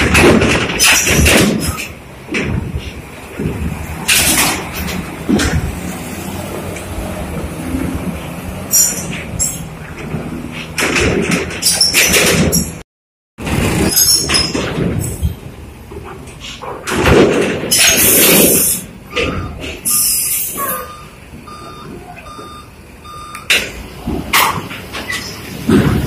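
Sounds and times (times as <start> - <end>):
heavy vehicles running: 0.0 - 12.8, 13.4 - 26.0
reversing alarm beeping: 19.1 - 23.6.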